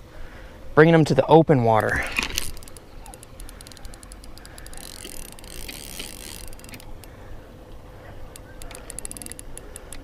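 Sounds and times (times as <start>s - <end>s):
fishing reel clicking rapidly: 2.3s - 7.2s, 8.3s - 10.0s.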